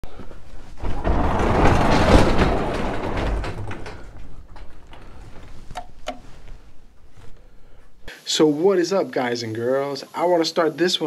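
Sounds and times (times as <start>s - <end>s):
garage door rolling up: 0.1s - 7.4s
light clicks and knocks: 0.2s - 7.4s.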